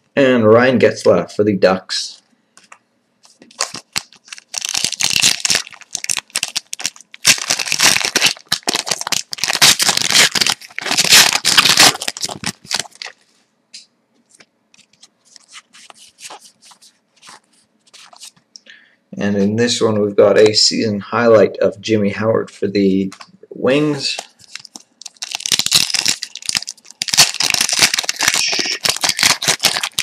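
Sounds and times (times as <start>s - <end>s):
wrapper tearing and crinkling: 3.2s - 13.2s, 14.8s - 18.4s, 24.2s - 30.0s.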